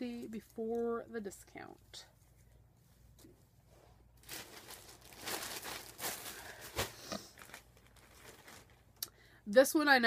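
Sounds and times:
fabric rustling: 2.2 - 8.9.

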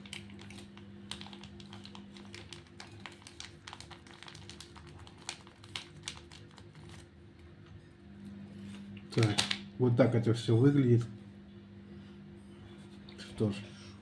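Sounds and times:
foil pouch crinkling: 0.0 - 7.2
faint steady hum: 0.0 - 14.0.

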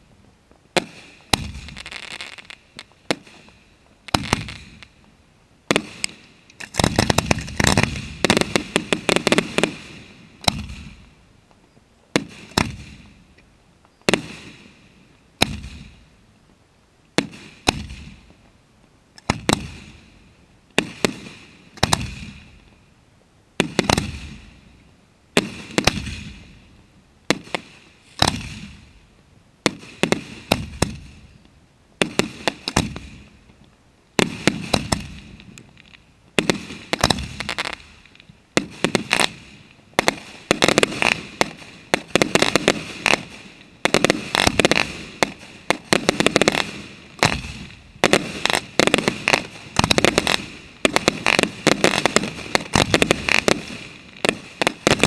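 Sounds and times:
fireworks bangs echoing: 0.7 - 4.9, 5.7 - 11.1, 12.2 - 13.2, 14.1 - 14.8, 15.4 - 16.0, 17.2 - 18.3, 19.2 - 20.2, 20.8 - 22.6, 23.6 - 24.6, 25.4 - 26.6, 27.3 - 29.0, 29.6 - 31.2, 32.0 - 33.4, 34.2 - 35.6, 36.4 - 55.0.

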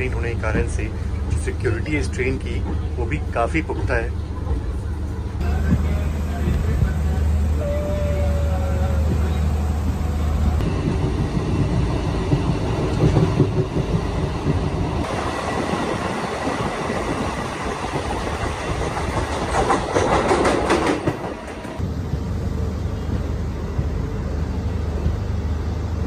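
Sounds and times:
train wheels and engine rumbling: 0.0 - 26.0
wheels clacking over rail joints: 17.8 - 21.8.

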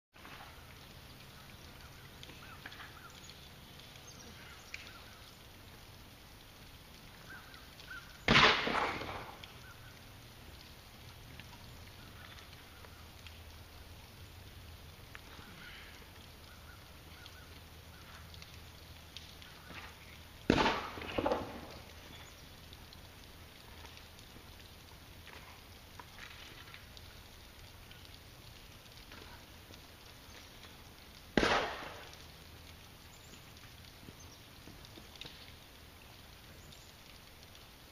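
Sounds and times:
rock impact on stony ground: 8.3 - 9.4, 20.5 - 21.8, 31.4 - 32.1
rock bouncing and clattering: 8.3 - 9.6, 19.2 - 22.3.

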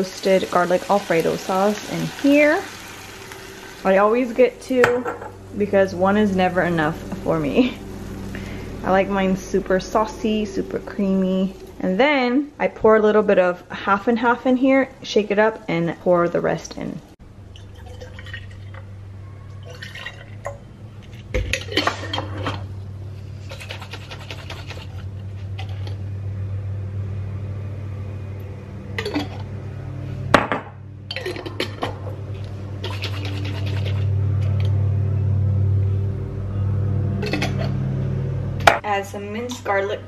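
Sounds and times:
steady low hum: 0.0 - 40.0
liquid pouring into glass jar: 17.5 - 18.8, 19.6 - 20.5
sloshing in shaken jar: 32.8 - 34.1.

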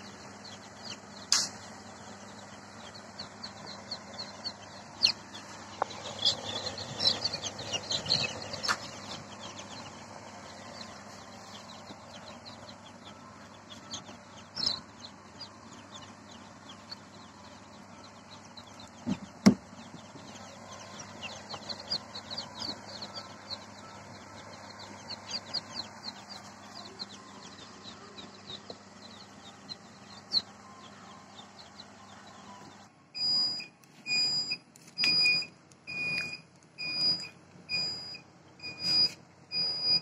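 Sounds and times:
chicks peeping: 0.0 - 40.0
steady low hum: 0.0 - 40.0
electronic beep: 33.2 - 40.0.

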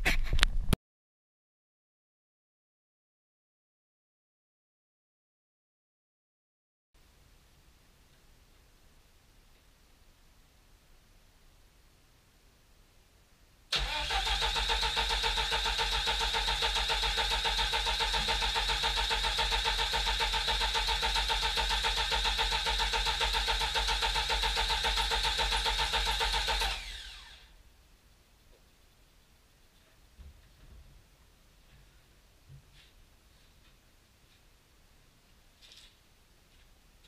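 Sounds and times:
car engine running with whine: 13.8 - 27.4.

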